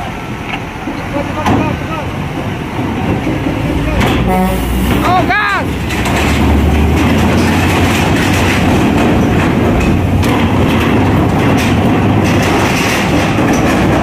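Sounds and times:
truck diesel engine pulling hard: 0.0 - 14.0
tyres rumbling over steel grating: 0.0 - 14.0
metal clanks: 2.8 - 14.0.

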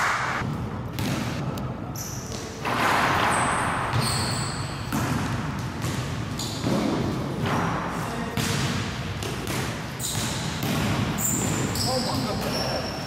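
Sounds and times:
basketball bouncing: 0.4 - 1.5, 2.6 - 7.6, 8.4 - 11.8
sneakers squeaking: 0.4 - 13.0.

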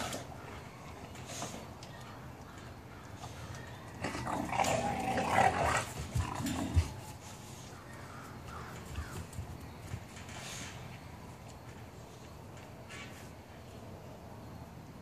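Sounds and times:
puppies growling: 0.0 - 0.6, 3.9 - 7.3.

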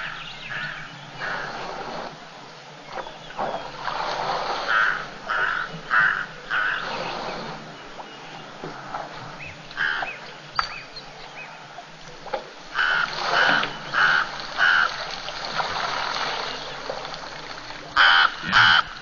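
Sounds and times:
bird cawing: 4.7 - 6.8, 9.8 - 10.2, 12.7 - 15.1, 18.0 - 19.0.

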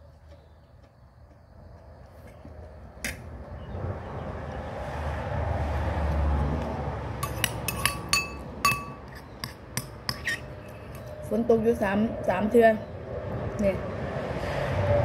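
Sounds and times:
cutlery clinking on ceramic plate: 7.2 - 9.3.

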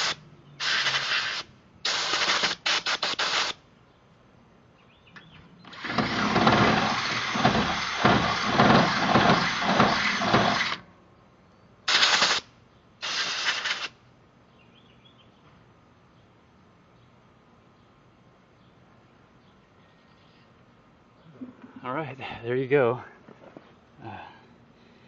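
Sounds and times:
air blow gun hissing: 0.0 - 3.6, 5.7 - 10.8, 11.9 - 14.0
drill cutting through steel: 5.7 - 10.8.

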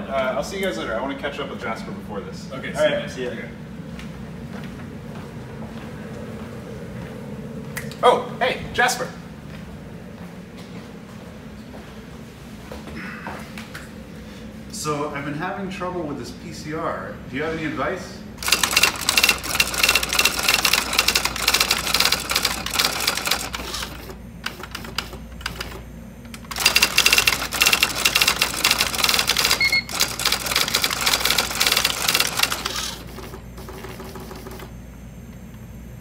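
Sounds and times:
faint steady hum: 0.0 - 36.0
electronic typewriter printing: 18.4 - 34.8.

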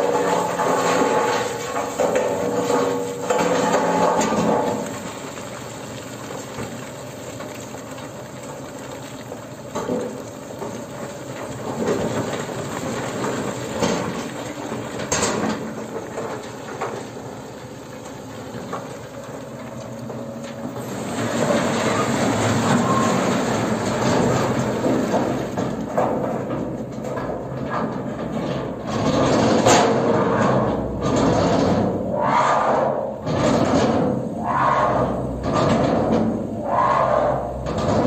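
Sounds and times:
truck engine running: 0.0 - 29.3
rocks sliding and rattling: 0.0 - 31.9
falling rock clatters: 0.0 - 32.0.

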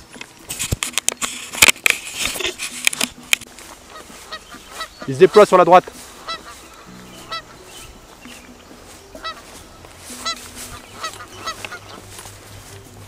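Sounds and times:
bird honking calls: 3.6 - 13.0.

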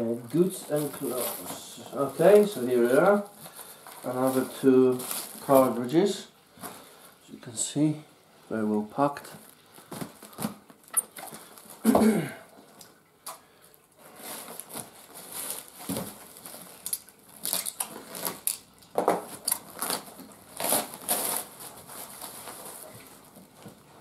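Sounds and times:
paper crinkling and rustling: 0.1 - 6.9, 14.0 - 24.0.

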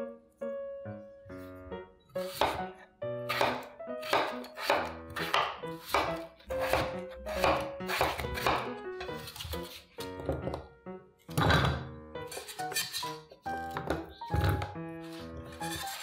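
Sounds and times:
knife chopping on cutting board: 2.2 - 2.7, 3.3 - 10.6, 12.3 - 16.0.

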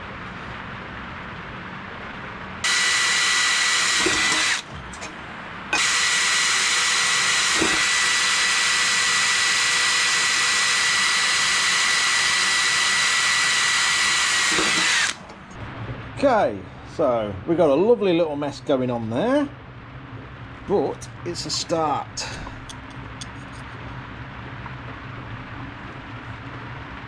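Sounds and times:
cordless drill whining: 2.6 - 4.7, 5.8 - 15.2.

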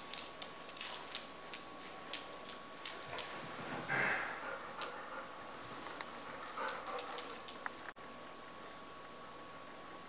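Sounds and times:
toy rustling: 0.0 - 7.9.

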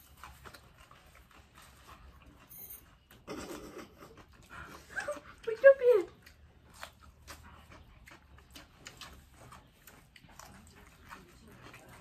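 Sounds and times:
crunching of raw greens: 0.0 - 3.2, 6.1 - 12.0.

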